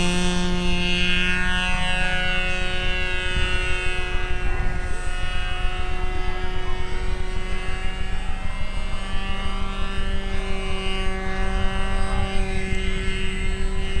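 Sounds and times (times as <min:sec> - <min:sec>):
model airplane engine buzz: 0:00.0 - 0:14.0.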